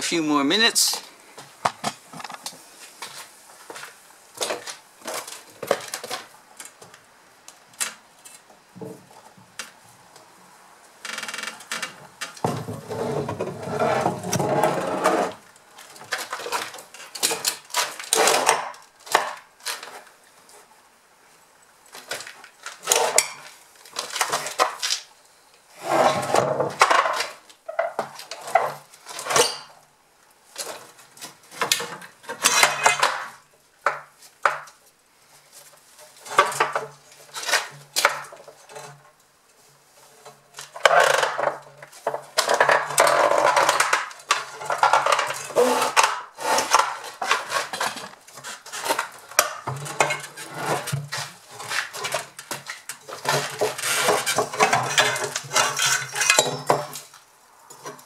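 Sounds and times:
heavy tank base scraping: 0:12.6 - 0:15.4, 0:25.8 - 0:26.6.

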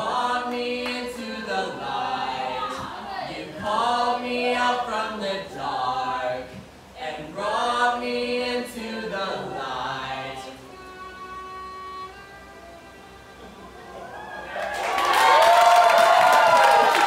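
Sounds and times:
group of voices singing: 0:00.0 - 0:12.2.

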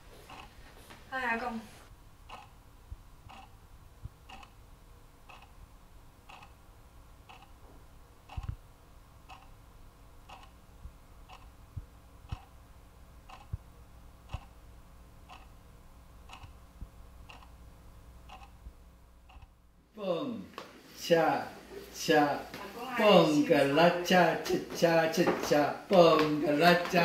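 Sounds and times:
clock ticking: 0:00.3 - 0:00.5, 0:02.3 - 0:02.6, 0:03.2 - 0:04.6, 0:05.2 - 0:05.6, 0:06.2 - 0:06.6, 0:07.2 - 0:07.6, 0:08.2 - 0:08.6, 0:09.2 - 0:09.6, 0:10.2 - 0:12.6, 0:13.2 - 0:14.6, 0:15.2 - 0:15.6, 0:16.2 - 0:17.6, 0:18.2 - 0:19.6.

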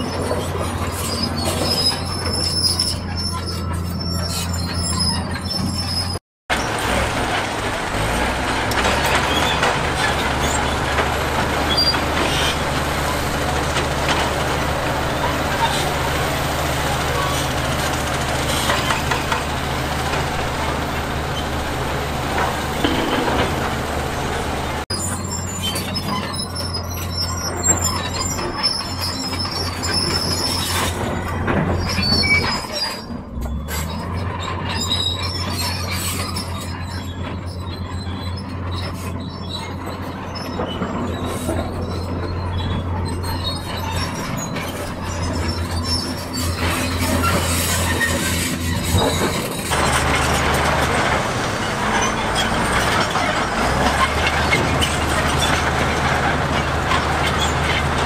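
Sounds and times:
high-pitched metallic squeaks: 0:00.0 - 0:06.2, 0:08.5 - 0:58.0
diesel engines droning: 0:00.0 - 0:58.0
metal clanks: 0:22.0 - 0:24.8.

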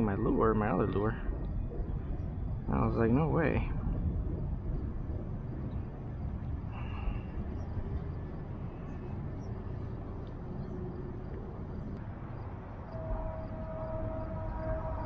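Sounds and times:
low rumble: 0:00.0 - 0:15.0
siren-like tone: 0:12.8 - 0:15.0.

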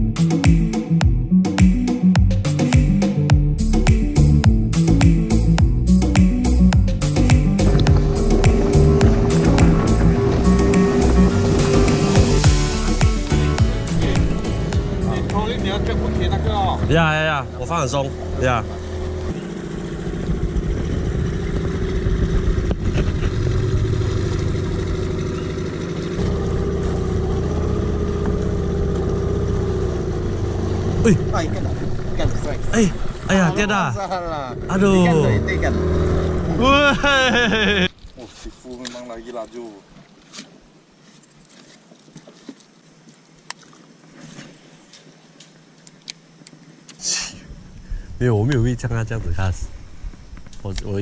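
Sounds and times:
outboard motor running: 0:02.2 - 0:37.9.

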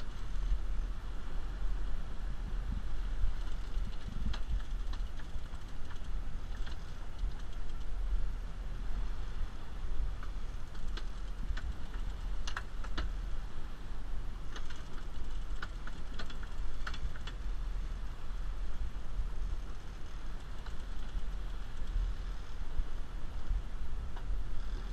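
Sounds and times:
low rumble: 0:00.0 - 0:24.9
fishing reel clicking: 0:14.5 - 0:17.4, 0:19.6 - 0:22.1.

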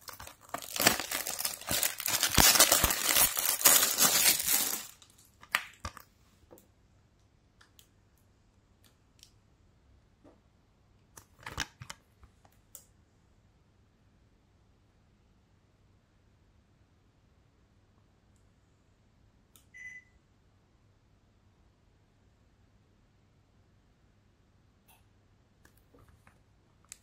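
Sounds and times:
plastic wrap crinkling: 0:00.0 - 0:06.0.

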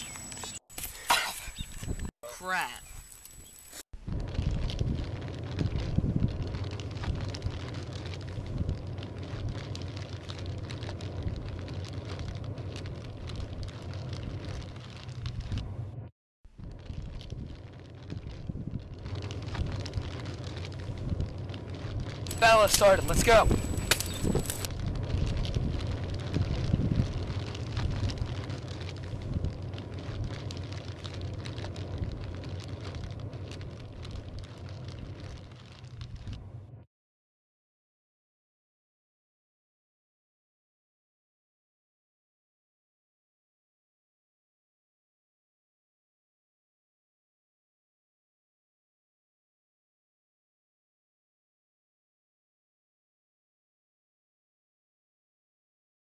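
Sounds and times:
flames crackling: 0:00.0 - 0:36.8
wind rumble on microphone: 0:01.5 - 0:02.1, 0:02.9 - 0:36.9.

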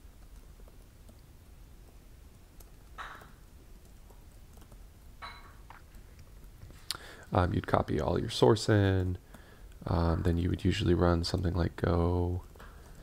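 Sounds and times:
keyboard typing: 0:02.6 - 0:04.8.

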